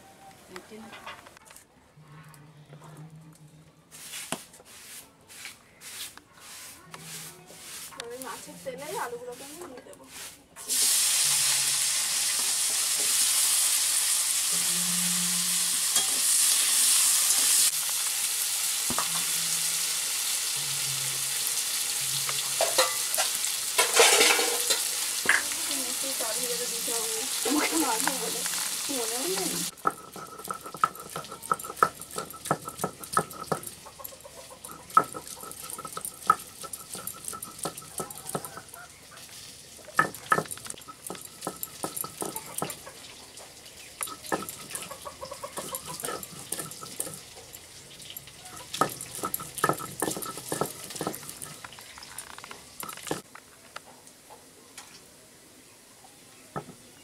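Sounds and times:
stone grinding scrapes and knocks: 29.7s - 34.0s, 34.6s - 38.7s, 40.0s - 42.8s, 44.0s - 44.9s, 45.5s - 47.4s, 48.6s - 53.3s
chickens clucking: 33.4s - 35.9s, 42.2s - 47.2s.

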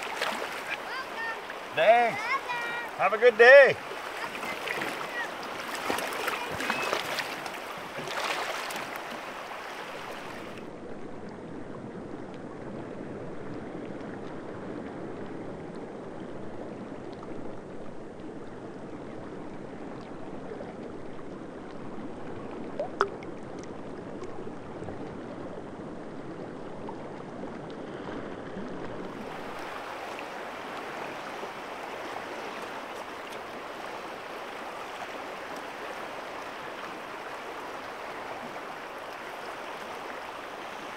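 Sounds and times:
river water rushing: 0.0s - 11.0s, 28.1s - 40.9s.

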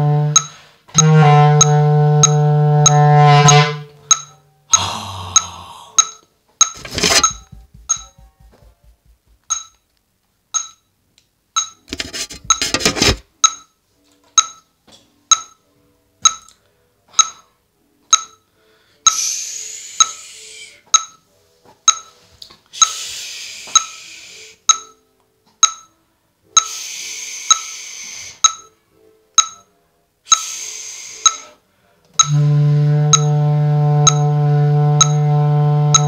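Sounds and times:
metronome clicking: 0.3s - 4.8s, 5.4s - 6.8s, 9.0s - 9.8s, 10.6s - 10.8s, 14.4s - 14.6s, 15.3s - 15.6s, 16.2s - 16.6s, 17.2s - 17.5s, 18.1s - 18.4s, 21.0s - 21.2s, 24.7s - 25.0s, 25.6s - 25.9s, 27.5s - 27.7s, 28.4s - 28.8s, 29.4s - 29.7s, 31.2s - 31.5s, 32.2s - 32.4s, 33.1s - 33.4s, 34.0s - 34.4s, 35.0s - 35.3s
breathy hiss: 4.8s - 6.0s, 18.6s - 20.8s, 22.7s - 24.6s, 26.6s - 28.4s, 30.3s - 31.6s
bass clarinet low note: 32.2s - 36.0s.

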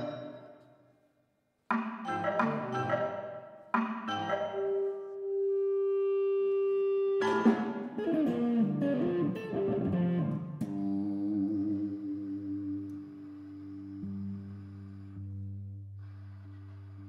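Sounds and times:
chamber ensemble playing: 2.0s - 6.3s.

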